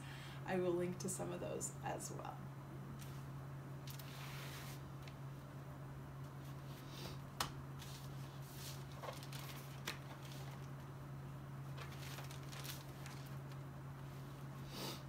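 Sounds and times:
steady low hum: 0.0s - 15.0s
paper rustling: 7.8s - 10.9s, 11.7s - 13.6s.

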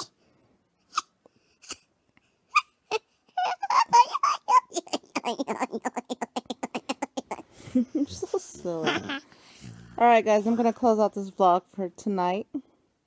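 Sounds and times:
girl giggling: 2.9s - 9.3s.

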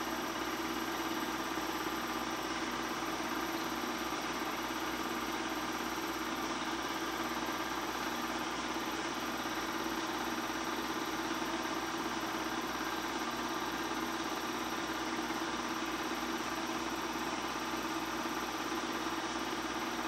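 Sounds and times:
film projector running: 0.0s - 20.0s.

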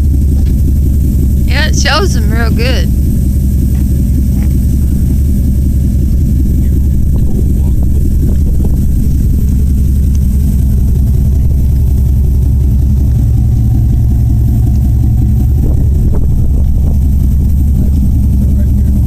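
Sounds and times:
truck engine idling loudly: 0.0s - 19.0s.

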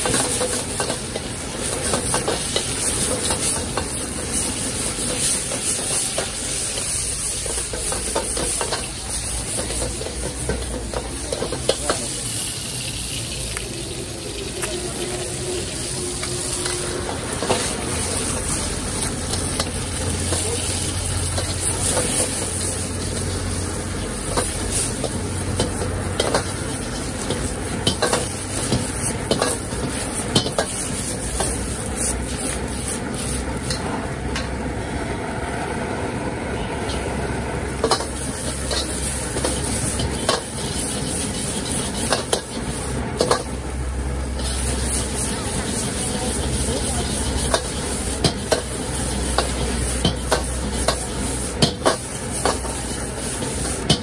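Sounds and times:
gas burner rushing: 0.0s - 54.0s
noodles sizzling in a wok: 0.0s - 54.0s
metal ladle scraping a wok: 15.4s - 33.9s, 37.7s - 54.0s.

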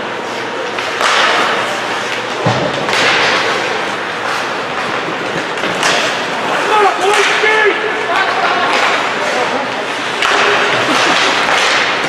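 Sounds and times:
skate blades scraping ice: 0.2s - 7.2s.

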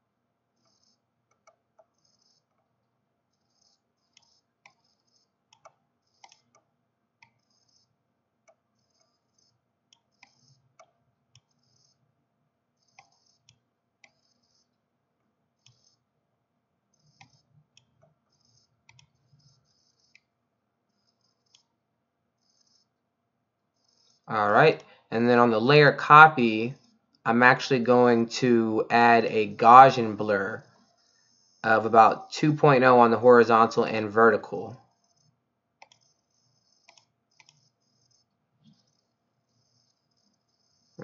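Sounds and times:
computer mouse clicks: 0.6s - 2.7s, 3.3s - 12.0s, 12.8s - 14.8s, 15.6s - 16.0s, 16.9s - 20.3s, 20.9s - 21.7s, 22.4s - 22.9s, 23.8s - 24.9s, 34.9s - 41.0s
soft scratchy sounds: 1.9s - 6.6s, 16.9s - 21.8s, 22.4s - 23.0s, 23.7s - 41.0s.

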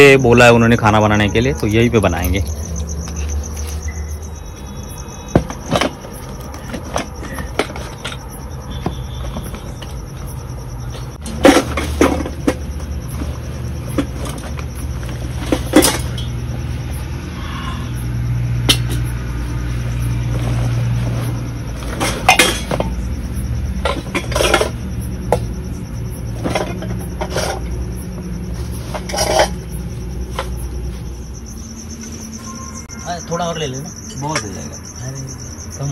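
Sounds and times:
steady low hum: 0.0s - 35.9s
steel dishes clattering: 11.2s - 16.4s, 21.8s - 23.0s, 23.8s - 24.9s, 26.4s - 27.7s, 28.8s - 29.8s.

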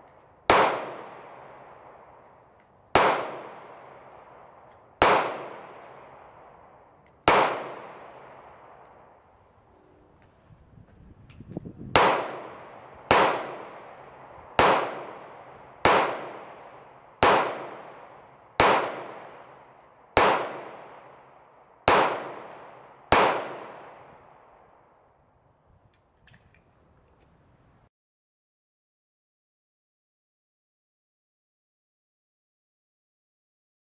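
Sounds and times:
pistol shots echoing: 0.0s - 9.3s, 11.8s - 24.7s.

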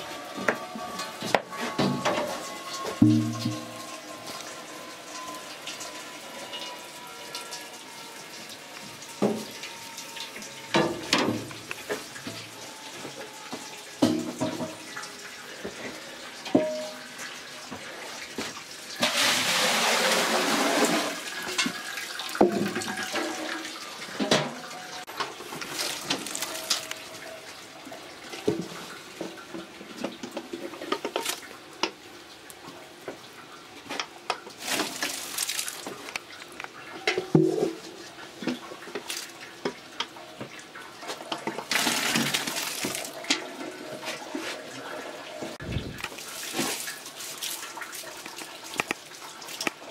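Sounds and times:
liquid pouring: 1.8s - 24.3s, 25.2s - 32.5s, 34.4s - 49.9s
wooden and metal gear clattering: 25.6s - 27.0s.

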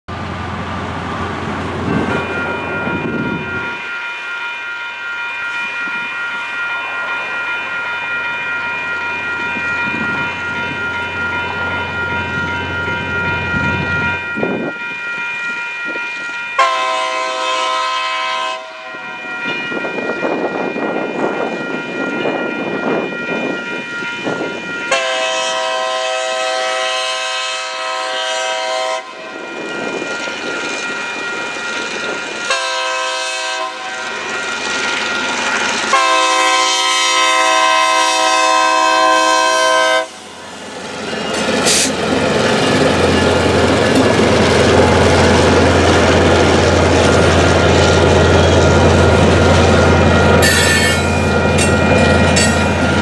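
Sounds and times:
railroad crossing bell ringing: 0.6s - 53.0s
locomotive air horn: 16.6s - 19.0s, 24.9s - 29.3s, 32.5s - 34.0s, 35.9s - 40.2s, 41.6s - 41.9s, 50.4s - 51.2s.

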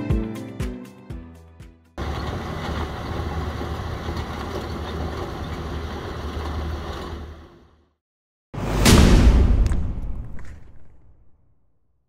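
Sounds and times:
tractor engine rumble: 2.0s - 7.7s.

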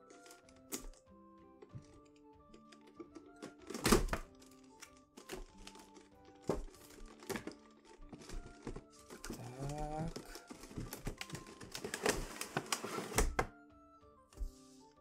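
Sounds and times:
background music held notes: 0.0s - 15.0s
packaging knocks and rustles: 2.6s - 13.5s.

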